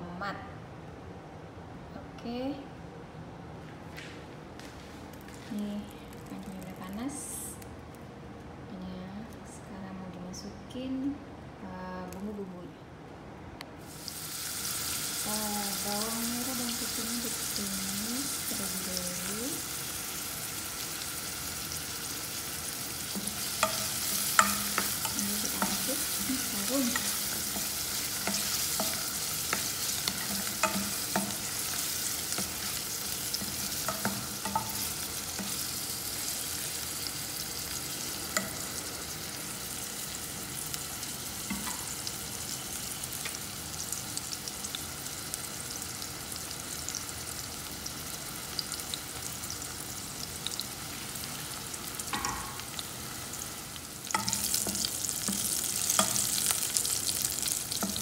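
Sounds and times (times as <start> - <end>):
vegetables sizzling in hot oil: 13.8 - 58.0
metal spoon scraping and tapping pan: 23.1 - 26.2, 26.8 - 32.8, 33.4 - 35.6, 38.3 - 38.6, 41.5 - 41.9, 52.1 - 52.6, 54.1 - 56.9.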